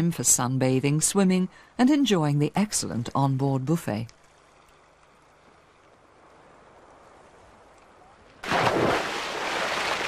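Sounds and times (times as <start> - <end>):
loud splash into water: 8.4 - 10.0
water churning: 8.4 - 10.0.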